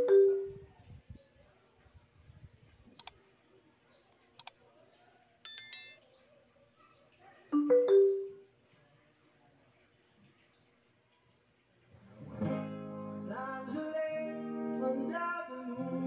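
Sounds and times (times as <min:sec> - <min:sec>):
high electronic chirp: 0:05.5 - 0:06.0.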